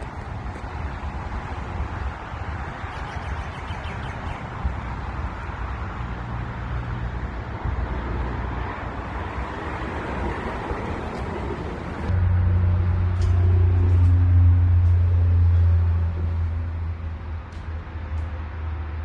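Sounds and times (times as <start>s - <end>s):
wind buffeting microphone: 0.0s - 12.2s.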